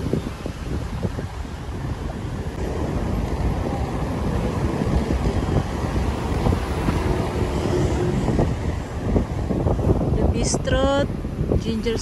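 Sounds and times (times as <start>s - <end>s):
street traffic rumble: 0.0s - 12.0s
wind buffeting microphone: 0.0s - 12.0s
motorbikes passing: 0.8s - 10.2s.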